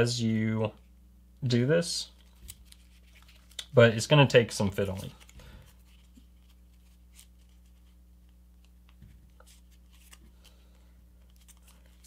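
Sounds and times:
steady low hum: 0.0s - 12.0s
paper rustling and crackling: 2.2s - 3.8s, 8.9s - 10.6s, 11.2s - 12.0s.

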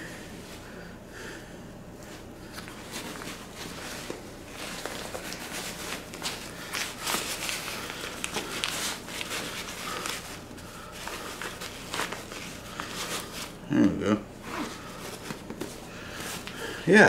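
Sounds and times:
fabric sack rustling and crinkling: 2.5s - 13.6s.

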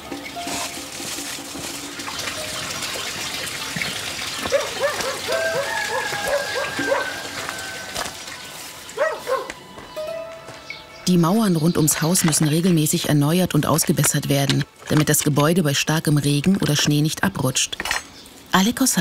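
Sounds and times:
running water: 0.0s - 9.4s
dog barking: 4.5s - 7.2s, 9.0s - 9.6s.

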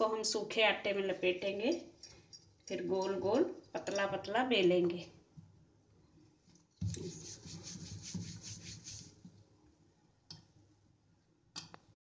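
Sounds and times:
rolling pin rubbing on dough: 6.8s - 9.3s.

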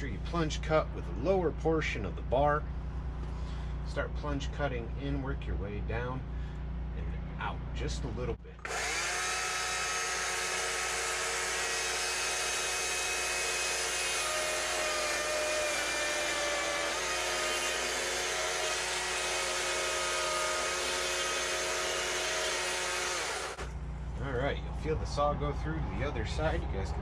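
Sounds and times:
chainsaw cutting wood: 8.6s - 23.7s.

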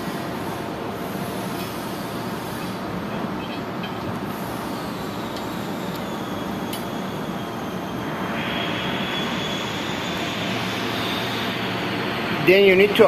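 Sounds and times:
workshop machinery drone: 0.0s - 13.0s
loud hiss: 4.2s - 13.0s.

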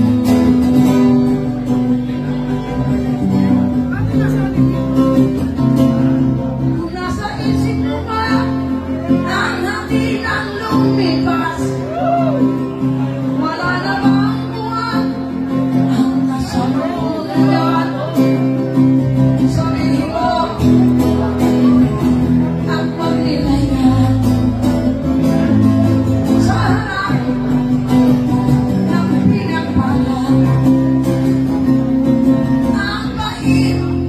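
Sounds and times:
acoustic guitar music: 0.0s - 34.0s
woman singing: 6.6s - 12.6s, 13.2s - 24.8s, 26.1s - 34.0s.

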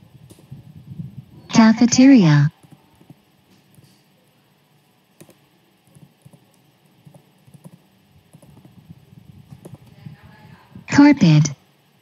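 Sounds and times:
computer keyboard typing: 2.6s - 3.8s, 5.2s - 8.8s, 9.5s - 9.9s.

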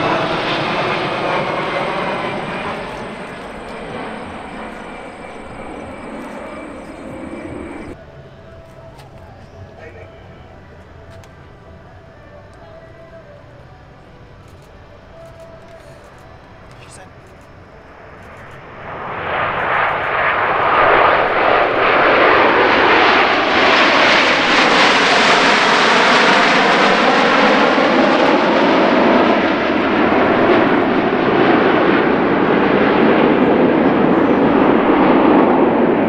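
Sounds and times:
jets flying past: 0.0s - 8.0s, 17.0s - 36.0s.

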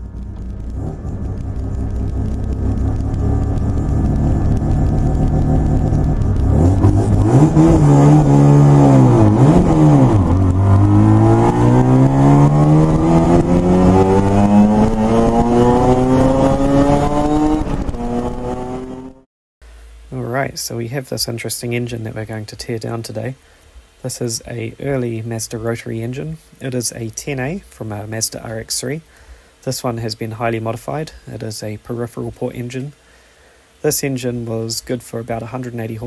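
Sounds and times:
rotary engine revving: 0.0s - 19.2s.

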